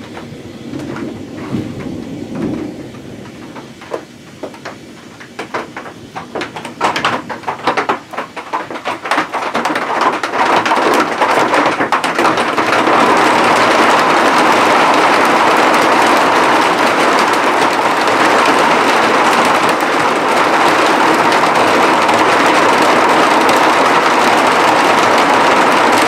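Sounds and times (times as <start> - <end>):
low rumble: 0.0 - 6.2
heavy rain downpour: 0.0 - 26.0
raindrops striking: 0.0 - 26.0.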